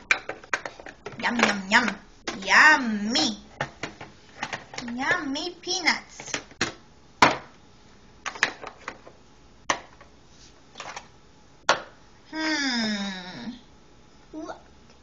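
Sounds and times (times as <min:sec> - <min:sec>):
plastic toys knocking on table: 0:06.3 - 0:07.5.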